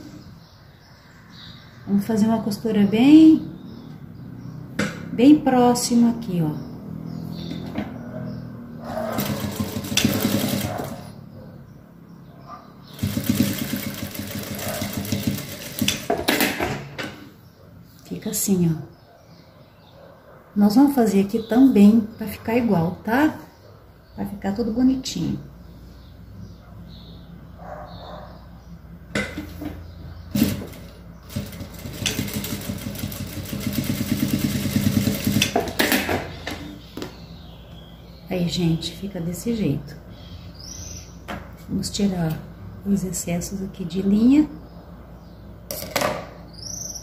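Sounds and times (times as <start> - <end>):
sewing machine stitching: 8.9 - 11.1, 12.9 - 16.8, 30.3 - 36.2
sewing machine clicks: 9.2 - 11.0, 13.0 - 16.6, 30.4 - 36.1.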